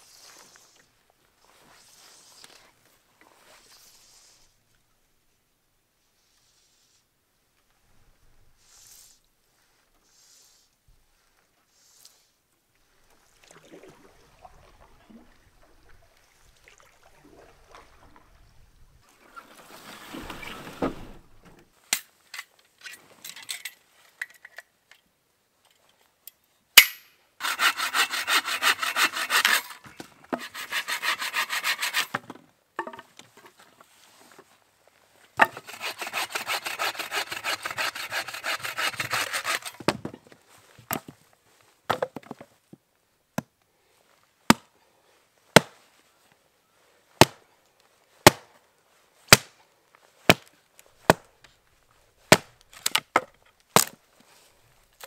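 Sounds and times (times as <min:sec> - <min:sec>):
hand saw cutting wood: 0:27.4 - 0:32.2, 0:35.4 - 0:39.9.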